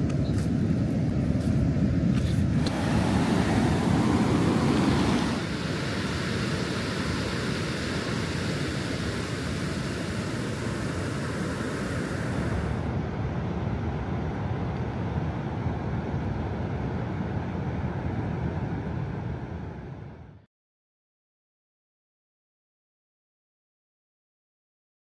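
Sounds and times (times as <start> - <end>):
ocean waves breaking: 1.5 - 20.0.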